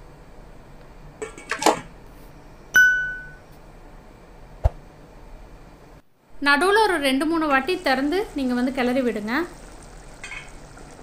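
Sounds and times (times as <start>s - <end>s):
metal lid clinking on pot: 10.2s - 10.5s.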